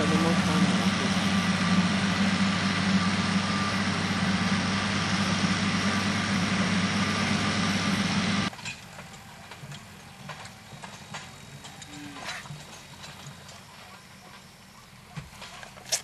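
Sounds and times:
motor idling drone: 0:00.0 - 0:08.5.

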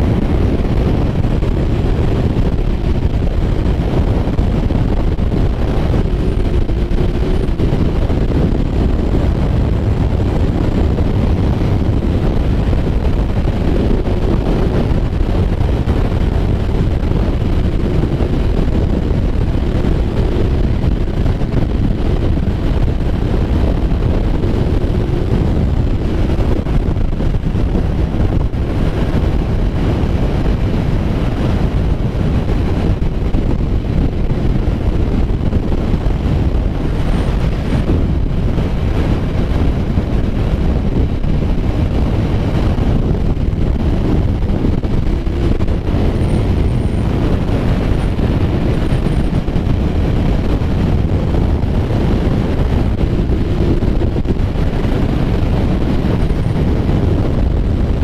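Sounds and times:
motorcycle engine: 0:00.0 - 0:58.0
road noise: 0:00.0 - 0:58.0
wind buffeting microphone: 0:00.0 - 0:58.0.

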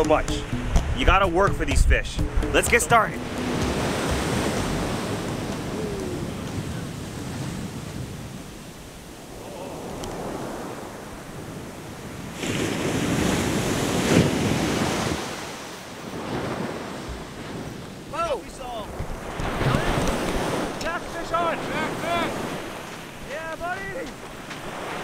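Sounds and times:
surf breaking on beach: 0:02.6 - 0:25.0
wind buffeting microphone: 0:03.5 - 0:25.0.

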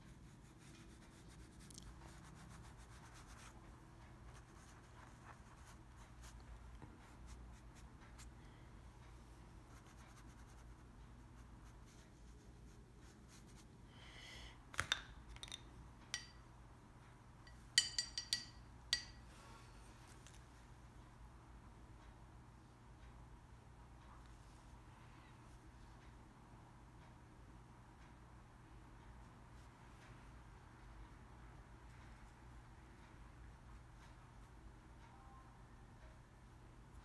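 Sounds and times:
paintbrush rubbing on paper: 0:00.0 - 0:08.3.

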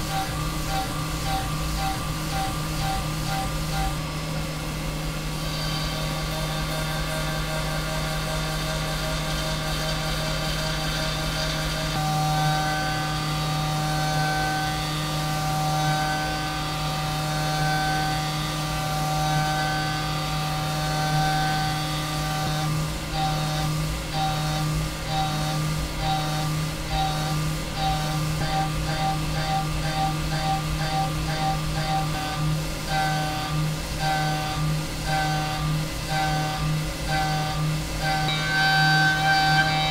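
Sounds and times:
mill machining whine: 0:00.0 - 0:39.9
higher pulse: 0:38.2 - 0:39.9.

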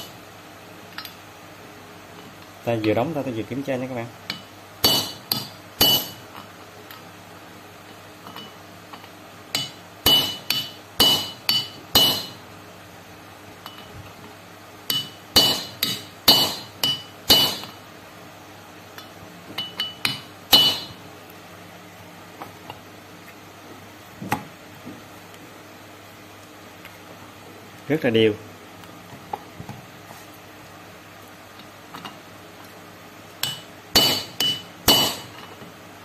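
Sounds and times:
hammer striking metal bearing: 0:04.3 - 0:06.2, 0:09.5 - 0:12.4, 0:14.9 - 0:17.8, 0:19.6 - 0:21.0, 0:33.4 - 0:35.6.

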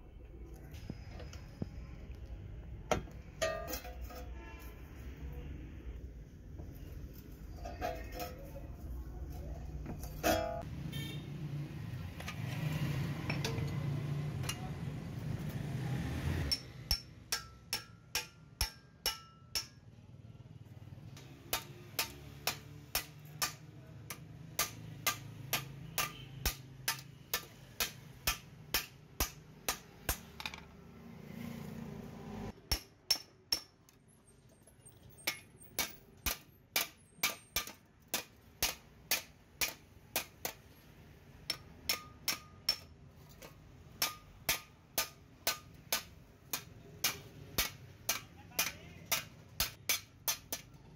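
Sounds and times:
hammer striking metal: 0:02.9 - 0:04.6, 0:16.5 - 0:19.8, 0:21.2 - 0:30.6, 0:32.6 - 0:33.9, 0:35.2 - 0:40.8, 0:41.4 - 0:50.8.

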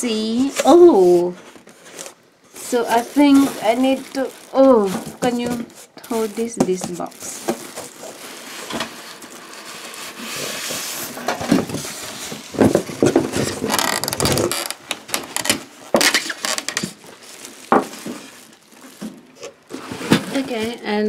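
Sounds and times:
plastic wrap rustling: 0:00.1 - 0:21.0
styrofoam scraping cardboard: 0:00.5 - 0:14.8, 0:19.0 - 0:21.0.

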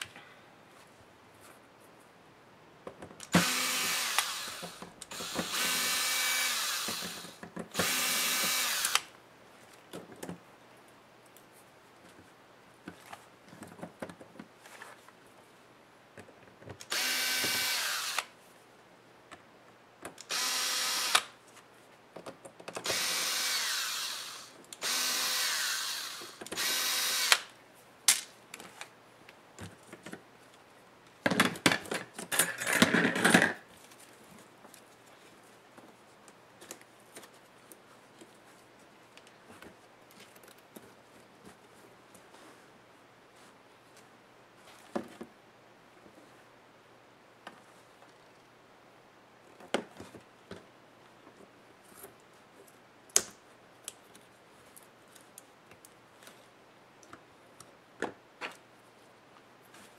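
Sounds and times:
electric screwdriver whirring: 0:03.3 - 0:09.1, 0:16.9 - 0:18.3, 0:20.2 - 0:21.3, 0:22.8 - 0:27.5.

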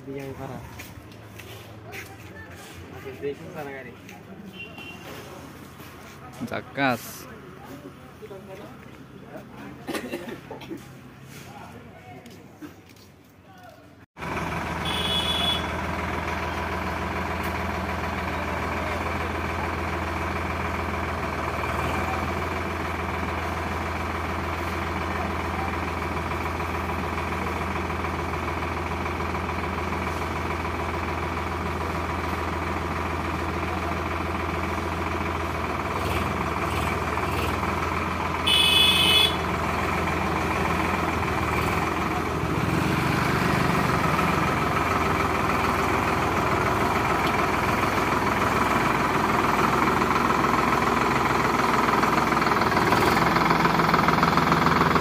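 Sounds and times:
diesel tractor engine idling: 0:14.2 - 0:55.0.

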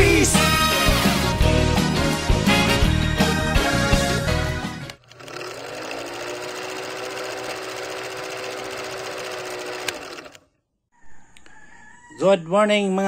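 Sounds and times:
motor hum: 0:04.8 - 0:10.4
film projector clatter: 0:04.9 - 0:10.4.

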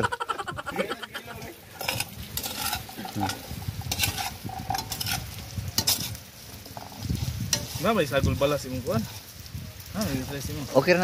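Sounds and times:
frying: 0:00.0 - 0:11.0
metal ladle scraping a wok: 0:01.5 - 0:08.1.

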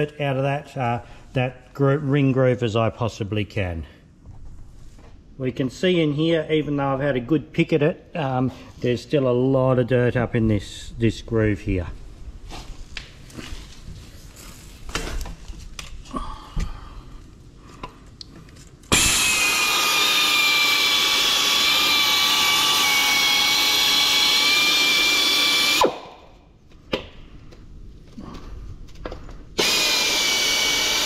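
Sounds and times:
drill whining with wire brush: 0:18.9 - 0:26.0, 0:29.6 - 0:31.0.

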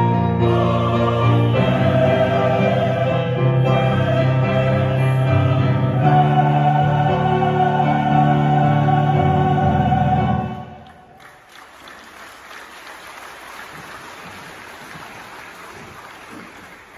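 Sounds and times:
mixed choir holding chord: 0:00.0 - 0:11.2.

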